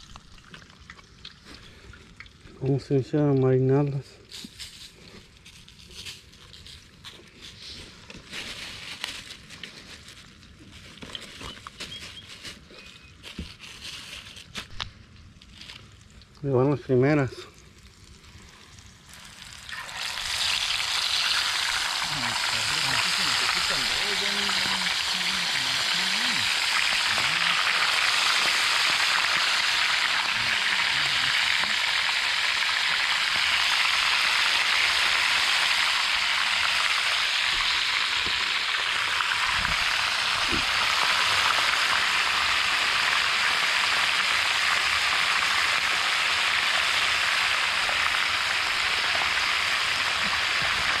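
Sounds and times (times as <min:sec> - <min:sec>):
fish frying in hot oil: 0:00.0 - 0:02.7, 0:17.6 - 0:51.0.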